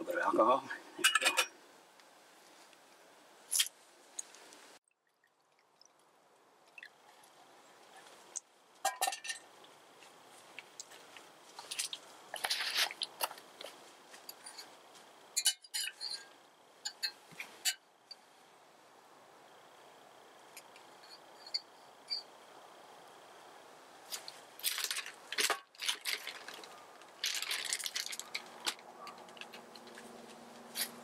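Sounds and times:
metal pot clinks and knocks: 0:01.0 - 0:01.6, 0:08.8 - 0:09.4, 0:15.4 - 0:16.2
rustling: 0:24.0 - 0:31.0.

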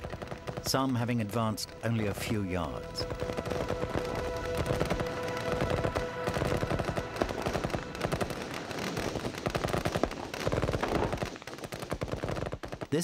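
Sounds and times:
machine gun fire: 0:00.0 - 0:00.8, 0:03.0 - 0:13.0
held musical chord: 0:00.8 - 0:08.8.

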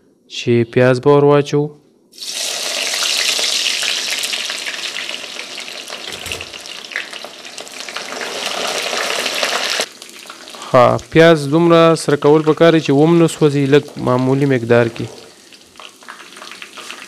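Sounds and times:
onions sizzling in hot oil: 0:02.1 - 0:11.2, 0:13.2 - 0:17.0.

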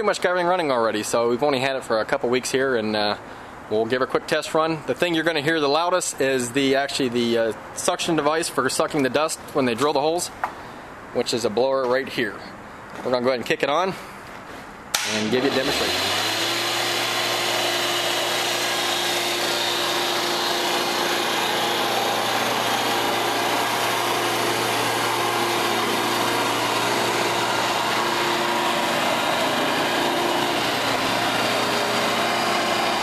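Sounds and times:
dust suction blower humming: 0:15.0 - 0:33.0.

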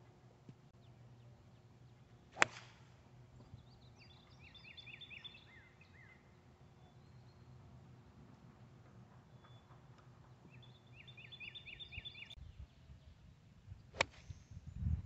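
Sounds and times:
golf club striking ball: 0:02.4 - 0:02.8
bird chirping: 0:03.3 - 0:08.1, 0:09.2 - 0:13.2.

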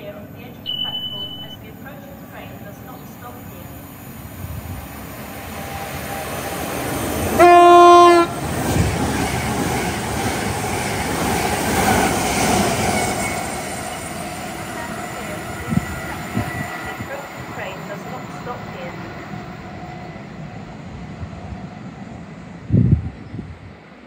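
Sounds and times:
train passing at speed: 0:00.0 - 0:24.0
train horn blast: 0:07.3 - 0:08.4.

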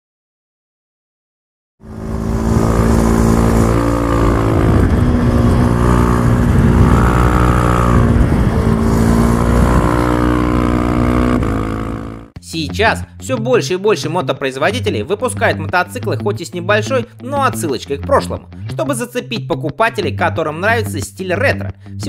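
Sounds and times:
motorcycle engine running hard: 0:01.8 - 0:12.4.

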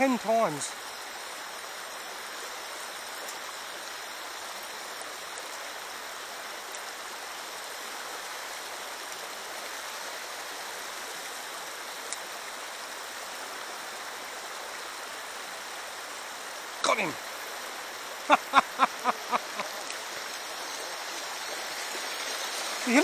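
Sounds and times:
creek water running: 0:00.0 - 0:23.0.

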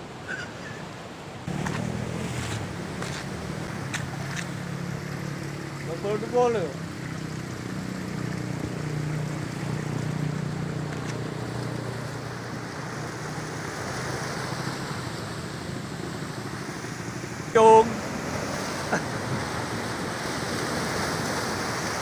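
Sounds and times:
waves breaking on rocks: 0:00.0 - 0:06.7, 0:16.4 - 0:22.0.

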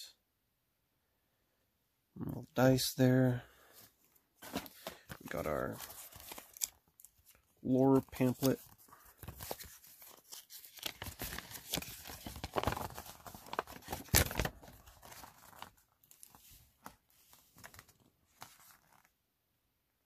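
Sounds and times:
packaging being torn and crinkled: 0:05.9 - 0:07.4, 0:09.3 - 0:16.9.

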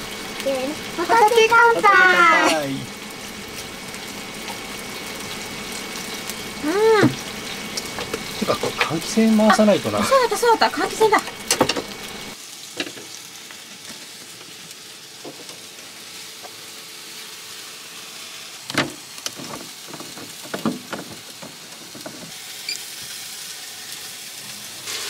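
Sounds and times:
food sizzling on a griddle: 0:00.0 - 0:25.0
utensils clicking on a plate: 0:07.4 - 0:09.0.

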